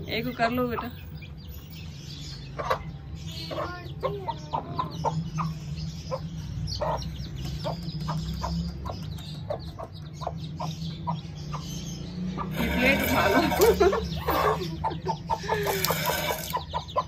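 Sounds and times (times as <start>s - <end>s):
hen clucking: 2.5s - 2.9s, 12.4s - 17.0s.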